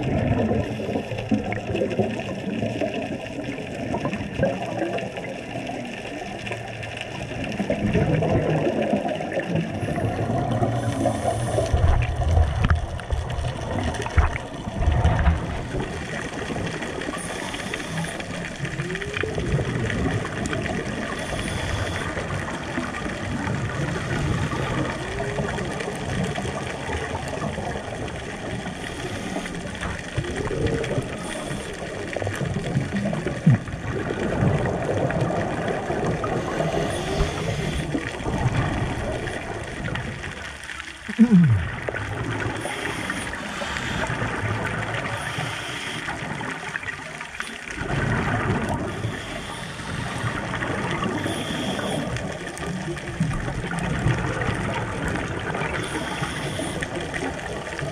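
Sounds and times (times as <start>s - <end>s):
exhaled air bubbling underwater: 0.0s - 57.9s
regulator inhalation hiss: 17.2s - 18.4s, 21.1s - 22.3s, 36.6s - 38.0s, 45.1s - 46.2s, 49.0s - 50.4s, 51.2s - 52.1s, 55.8s - 56.8s.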